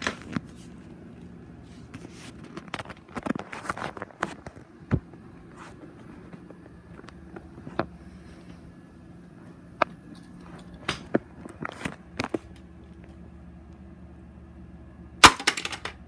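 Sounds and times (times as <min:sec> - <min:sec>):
steady low hum: 0:00.0 - 0:16.0
hard toys knocking and clicking: 0:15.2 - 0:16.0.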